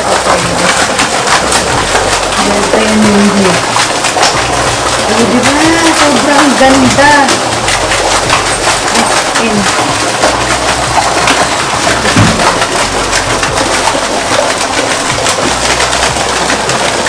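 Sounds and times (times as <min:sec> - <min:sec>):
fountain water splashing: 0:00.0 - 0:17.0.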